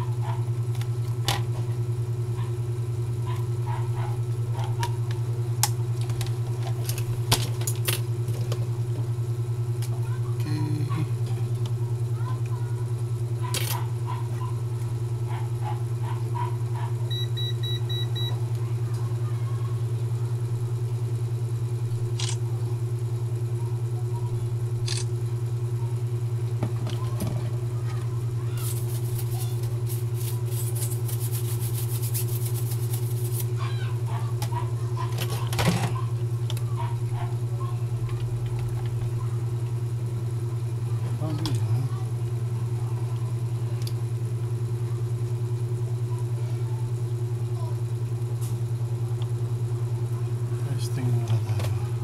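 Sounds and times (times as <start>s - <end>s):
low background hum: 0.0s - 52.0s
short electronic beep: 17.1s - 18.4s.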